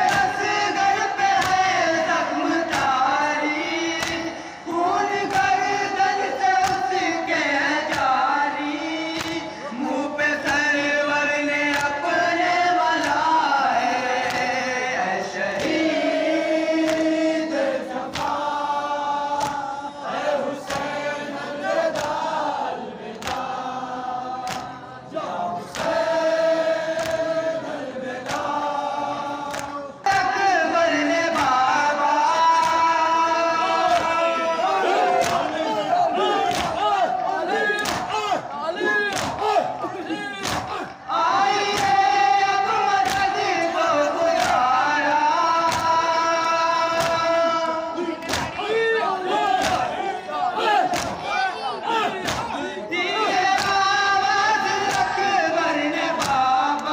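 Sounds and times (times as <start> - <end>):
men chanting in unison: 0.0 - 56.9
person reciting on a microphone: 0.0 - 56.9
chest-beating slaps: 1.3 - 1.7, 2.6 - 3.0, 3.9 - 4.5, 6.6 - 6.9, 9.1 - 9.6, 16.8 - 17.2, 18.0 - 19.7, 21.8 - 22.2, 23.1 - 23.6, 24.4 - 24.8, 25.7 - 26.0, 26.8 - 27.3, 29.4 - 30.3, 34.9 - 41.0, 41.6 - 42.1, 43.0 - 43.8, 45.6 - 46.0, 46.9 - 47.3, 48.2 - 48.7, 49.6 - 50.0, 50.7 - 51.3, 52.1 - 52.7, 54.8 - 55.1, 56.1 - 56.9.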